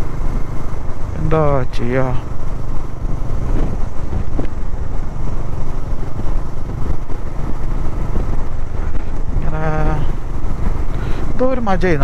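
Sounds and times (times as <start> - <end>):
motorcycle engine rumble: 0.0 - 12.0.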